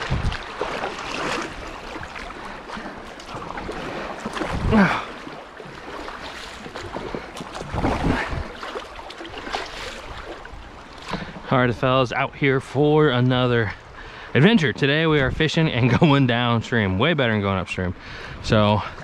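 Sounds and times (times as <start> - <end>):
wind on microphone: 0.0 - 2.1, 3.4 - 5.0, 6.9 - 8.6
paddle strokes splashing: 0.0 - 12.0
water rushing along hull: 0.0 - 19.0.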